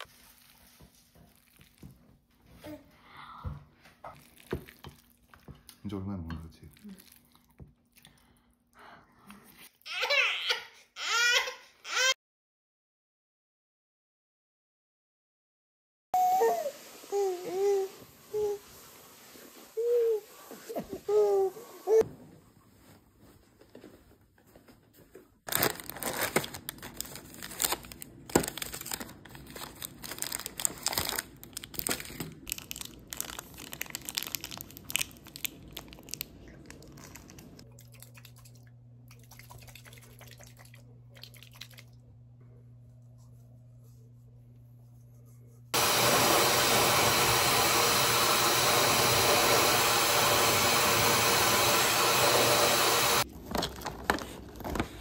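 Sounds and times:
rustling and crinkling: 0:00.0 - 0:02.9, 0:22.0 - 0:37.7, 0:53.3 - 0:55.0
low steady hum: 0:32.5 - 0:45.7
hair dryer running: 0:45.8 - 0:53.3.

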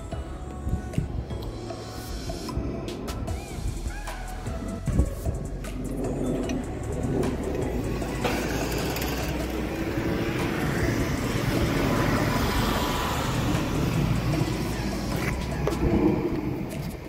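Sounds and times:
road vehicle passing: 0:01.3 - 0:17.0.

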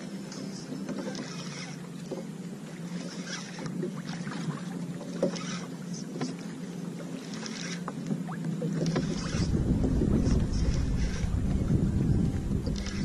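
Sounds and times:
water lapping against kayak hull: 0:00.0 - 0:13.0
low hum: 0:08.3 - 0:13.0.

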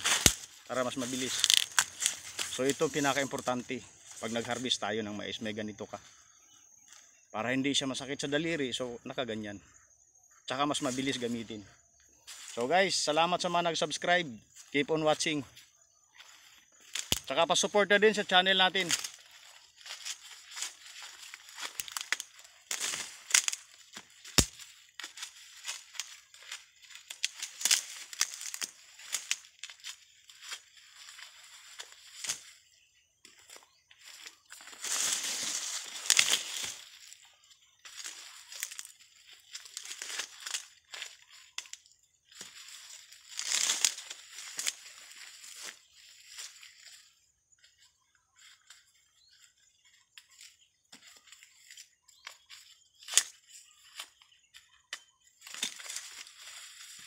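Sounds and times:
corn husks crackling and tearing: 0:00.0 - 0:03.7, 0:16.8 - 0:17.3, 0:18.2 - 0:32.6, 0:33.3 - 0:37.3, 0:37.9 - 0:47.0, 0:55.0 - 0:57.0.

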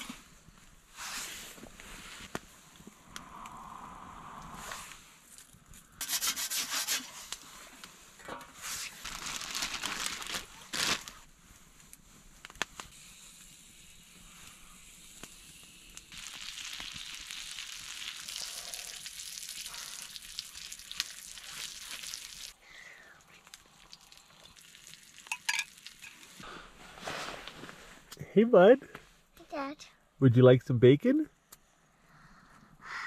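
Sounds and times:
bacon sizzling in a skillet: 0:13.1 - 0:22.6, 0:23.5 - 0:26.4.

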